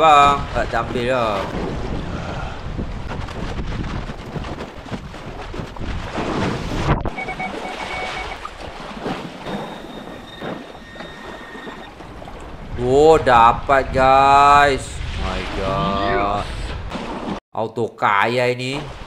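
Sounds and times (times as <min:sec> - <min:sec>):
wind buffeting microphone: 0:00.0 - 0:07.4, 0:08.5 - 0:16.9
water at shoreline: 0:00.0 - 0:17.4, 0:18.6 - 0:19.0
metal detector electronic tones: 0:07.0 - 0:08.5, 0:09.5 - 0:11.9.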